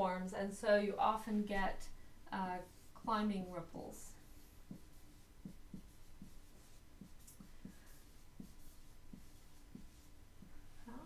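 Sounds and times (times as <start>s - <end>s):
marker squeaking on whiteboard: 4.6s - 11.0s.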